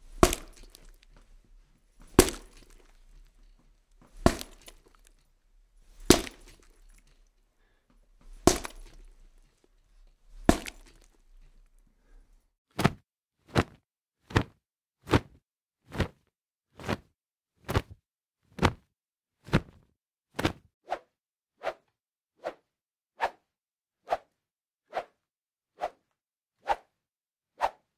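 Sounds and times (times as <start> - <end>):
punch hits: 0.1 - 1.0, 2.0 - 3.0, 4.1 - 4.8, 5.9 - 6.8, 8.2 - 9.1, 10.4 - 11.1.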